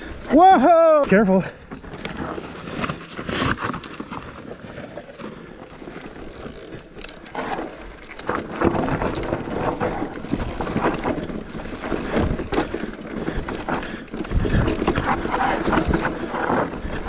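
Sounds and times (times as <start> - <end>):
bike rattling and knocking: 0.0 - 17.0
tyres crunching over stones: 1.1 - 17.0.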